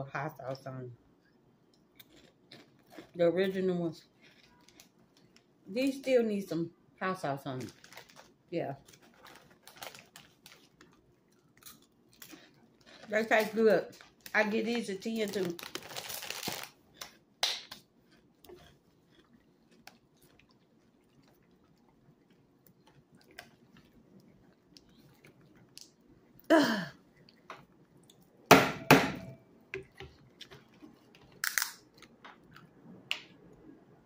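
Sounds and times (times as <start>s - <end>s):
chewing crunchy snacks: 1.7s - 5.6s, 7.7s - 26.5s, 30.1s - 32.8s.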